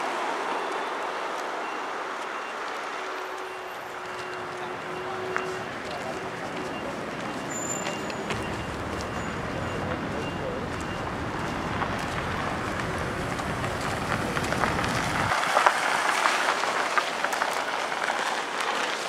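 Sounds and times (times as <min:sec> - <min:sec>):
footsteps on gravel: 0:01.2 - 0:19.0
low rumble: 0:08.3 - 0:15.3.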